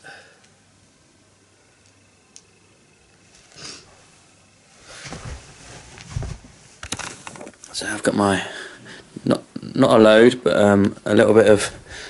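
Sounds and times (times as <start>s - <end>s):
rustling: 3.2s - 7.8s.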